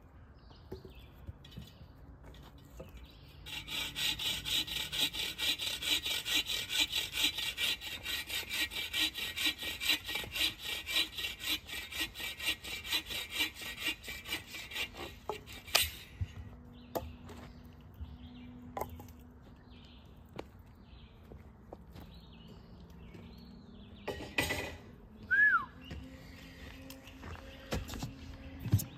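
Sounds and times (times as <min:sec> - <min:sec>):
saw rasping through branch: 0:03.4 - 0:16.4.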